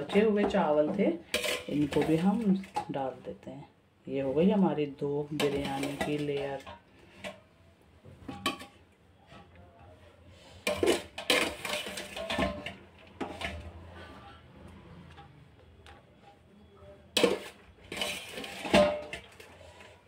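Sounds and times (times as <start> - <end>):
utensil scraping cooking pots: 0.0 - 3.1, 5.1 - 7.6, 8.2 - 15.4, 17.1 - 20.0.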